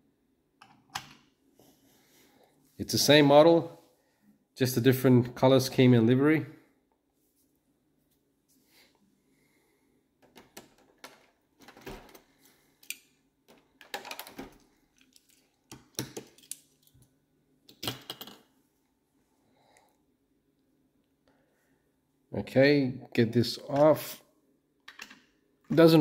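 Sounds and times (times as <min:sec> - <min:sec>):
small hard objects clicking and rattling: 0:13.8 - 0:17.0.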